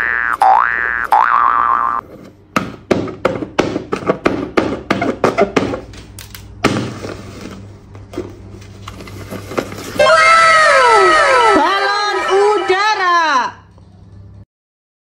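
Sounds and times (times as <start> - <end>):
paper rustling: 8.5 - 10.0.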